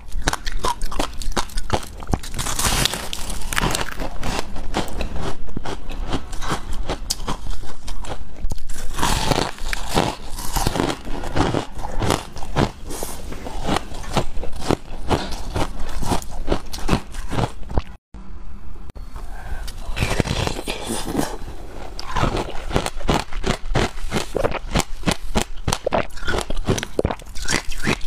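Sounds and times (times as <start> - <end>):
ice crunching being chewed: 0.0 - 17.9, 19.7 - 28.0.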